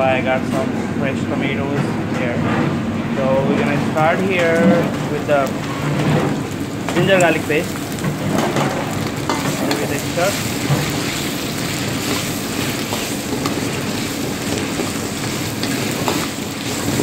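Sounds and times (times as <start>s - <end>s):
meat sizzling in hot oil: 5.4s - 17.0s.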